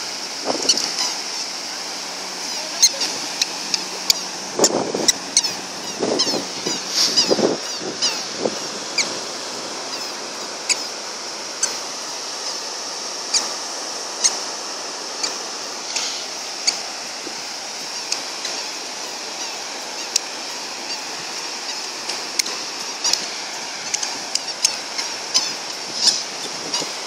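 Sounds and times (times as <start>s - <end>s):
surf washing on beach: 0.0s - 27.0s
wind on microphone: 0.3s - 1.0s, 2.7s - 10.3s, 25.3s - 27.0s
squeaker sandals squeaking: 0.5s - 9.2s, 9.8s - 11.8s, 20.8s - 27.0s.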